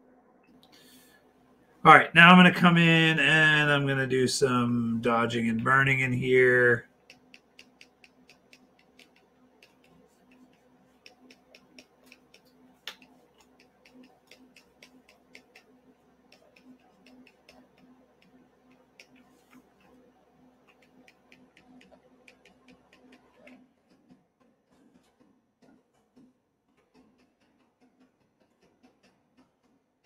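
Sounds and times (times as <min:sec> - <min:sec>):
faint steady hum: 0:00.0 - 0:30.0
computer mouse clicking: 0:07.0 - 0:29.9.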